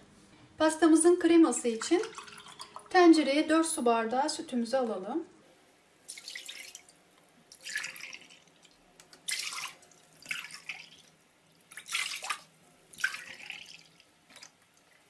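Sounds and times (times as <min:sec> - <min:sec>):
milk pouring: 0:01.9 - 0:03.0, 0:06.1 - 0:15.0.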